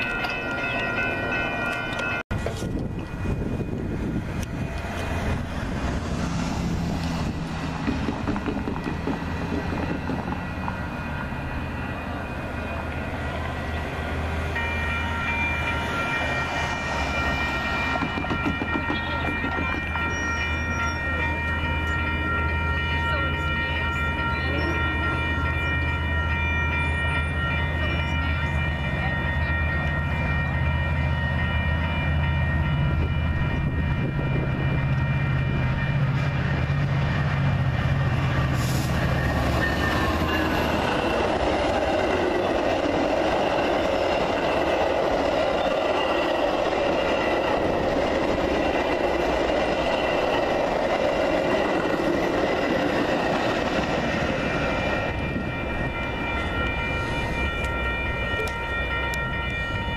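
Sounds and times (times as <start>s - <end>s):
train wheels clattering on rails: 0.0s - 10.8s, 16.9s - 21.7s
crossing bells ringing: 0.0s - 59.9s.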